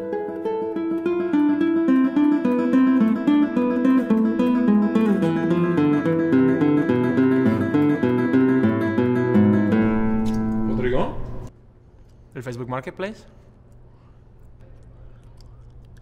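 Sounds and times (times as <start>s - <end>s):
plucked acoustic guitar melody: 0.0s - 11.5s.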